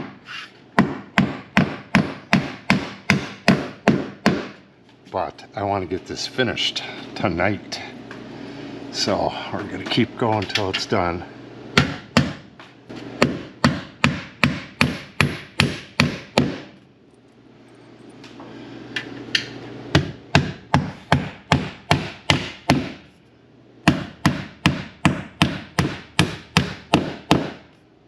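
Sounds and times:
hammer driving nails through metal: 0.8 - 4.6, 13.2 - 16.8, 19.3 - 23.0, 23.8 - 27.6.

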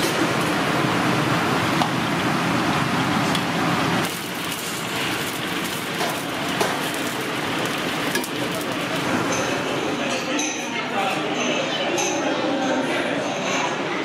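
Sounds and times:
seafood deep-frying in oil: 0.0 - 9.7
wok burner: 0.0 - 10.4.

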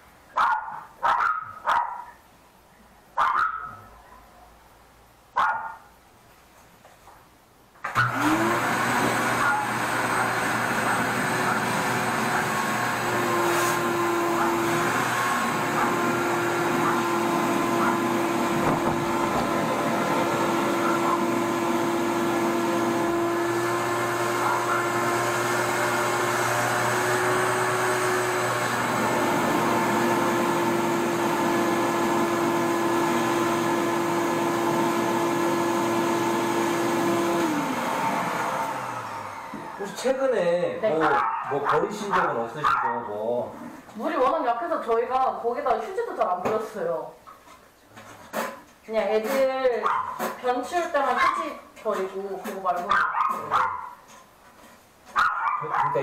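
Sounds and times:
shop vacuum running: 7.9 - 40.5.

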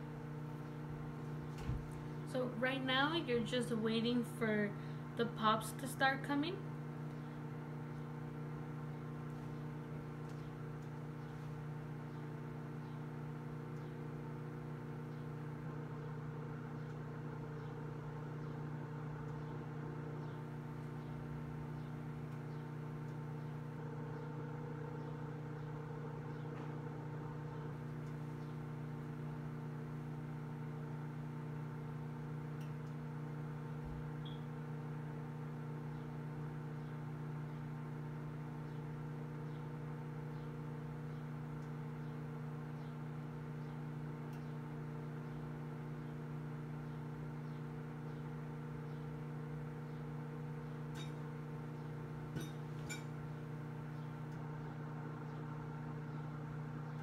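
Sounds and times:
microwave oven humming: 0.0 - 57.0.

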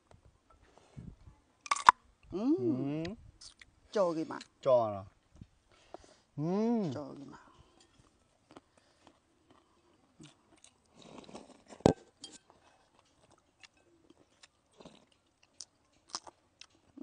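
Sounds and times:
chewing and biting food: 8.4 - 17.0.

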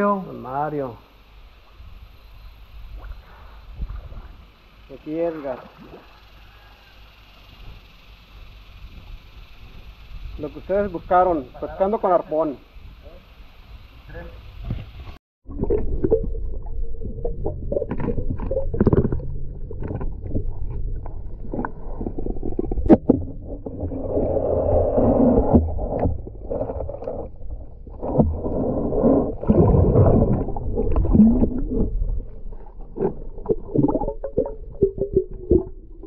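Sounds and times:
muffled underwater rumbling: 14.0 - 36.0
clicks and knocks underwater: 14.7 - 36.0.

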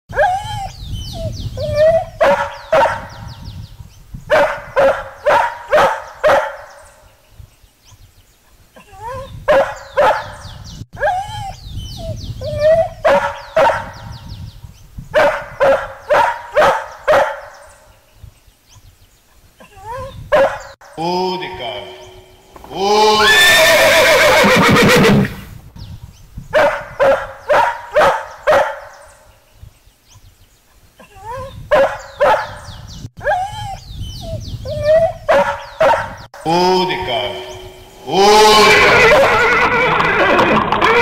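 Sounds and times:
dog barking: 1.9 - 3.2, 4.3 - 6.8, 9.5 - 10.4, 12.8 - 14.0, 15.1 - 17.7, 20.3 - 20.8, 26.5 - 29.2, 31.7 - 33.5, 34.8 - 36.2
dog yelping and whining: 33.2 - 36.0.

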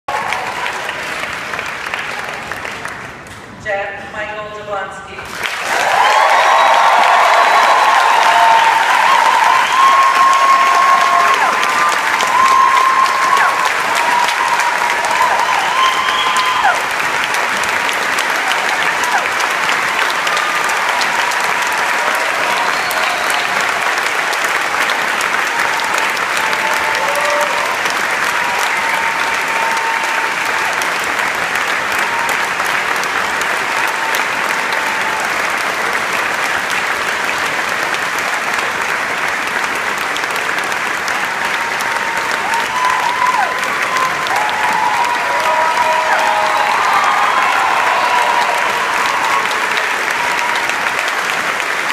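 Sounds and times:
audience applauding and cheering: 0.0 - 3.5, 5.3 - 51.9
calls and whoops: 5.7 - 17.0, 25.6 - 30.8, 41.4 - 50.8.

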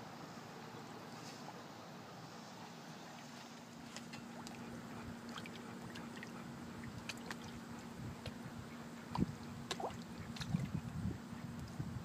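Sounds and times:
low steady hum: 0.0 - 12.0
water lapping and splashing: 2.4 - 11.8.

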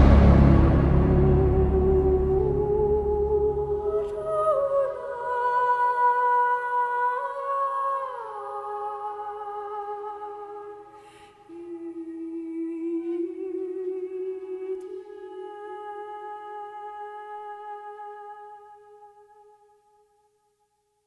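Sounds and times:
slow hummed background music: 0.0 - 4.8.

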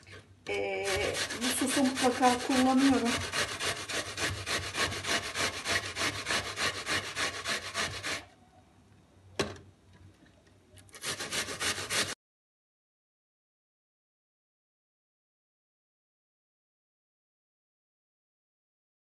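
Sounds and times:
onion grated on metal grater: 0.0 - 8.3, 10.9 - 12.2.

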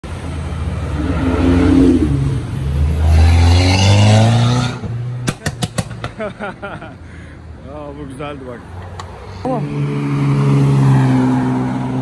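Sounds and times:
car engine revving: 0.6 - 6.0.

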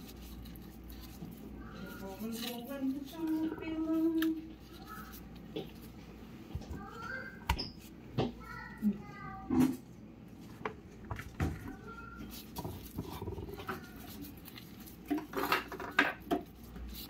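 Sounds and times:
hands stuffing filling: 0.0 - 8.0, 11.6 - 17.0.

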